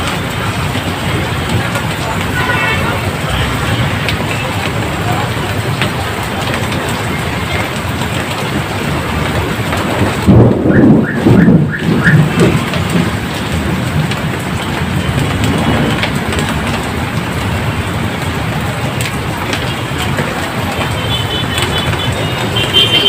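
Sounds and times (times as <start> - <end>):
heavy rain pouring: 0.0 - 23.0
low rumble of thunder: 7.6 - 20.4.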